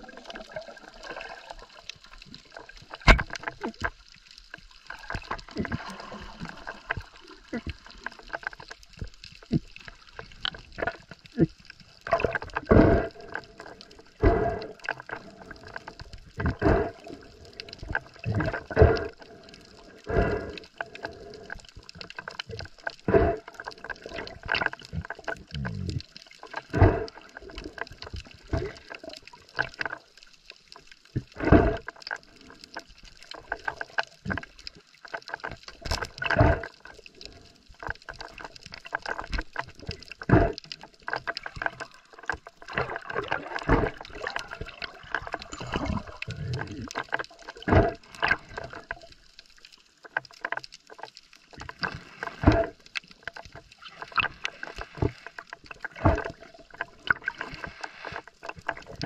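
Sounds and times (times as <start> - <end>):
bubbly bursts: 0.0 - 3.7, 11.4 - 19.4, 41.4 - 48.9
underwater gurgling water: 0.0 - 59.0.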